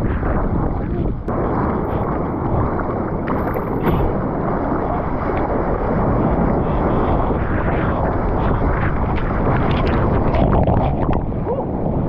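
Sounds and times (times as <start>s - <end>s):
waves washing and churning: 0.0s - 12.0s.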